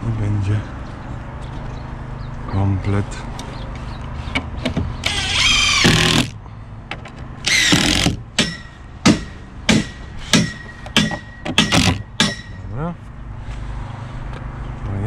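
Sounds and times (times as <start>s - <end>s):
cordless drill whining: 5.0s - 6.4s, 7.4s - 8.2s
hammer blows: 7.5s - 12.8s.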